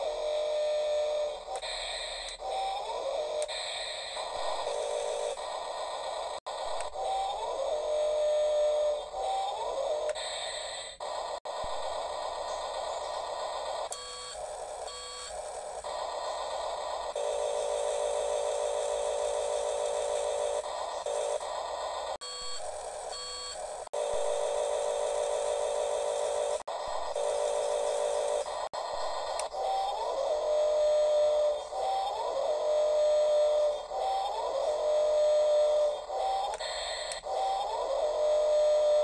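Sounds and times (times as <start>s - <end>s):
electronic toy beeping: 0.1s - 5.4s, 6.7s - 11.0s, 12.5s - 16.5s, 22.2s - 39.0s.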